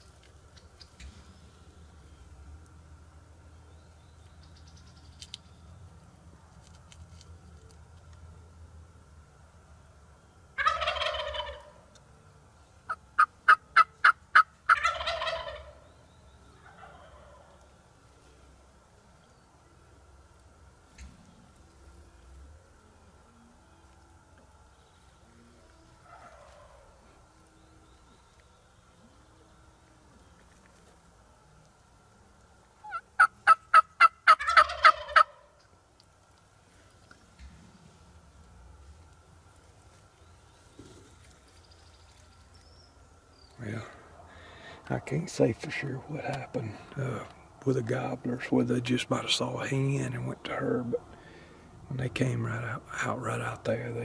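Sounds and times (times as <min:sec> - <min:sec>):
turkey gobbling: 0:10.6 - 0:11.8, 0:12.9 - 0:15.9, 0:16.5 - 0:17.7, 0:25.5 - 0:27.1, 0:32.8 - 0:35.7
turkey clucks: 0:10.6 - 0:12.0, 0:12.9 - 0:15.9, 0:16.5 - 0:17.7, 0:25.3 - 0:27.4, 0:32.7 - 0:35.9, 0:43.8 - 0:49.7.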